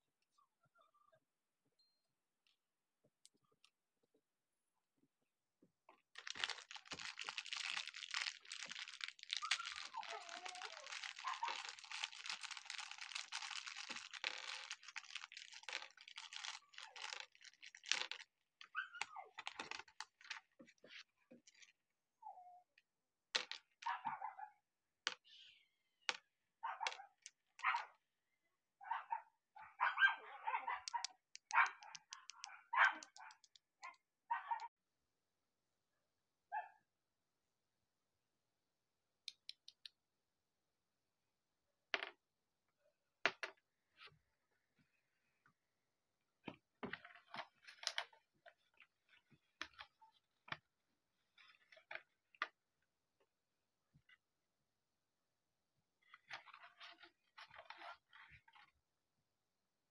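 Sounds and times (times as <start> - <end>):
dog barking in short yaps: 28.8 - 33.3
toy parts clicking on a mat: 30.9 - 33.7, 39.3 - 40.0.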